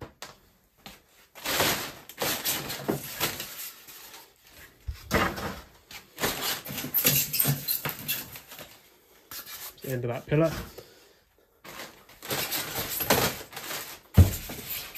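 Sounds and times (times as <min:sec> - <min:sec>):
polystyrene scraping plastic wrap: 0:01.2 - 0:04.8, 0:06.0 - 0:10.4, 0:11.6 - 0:14.9.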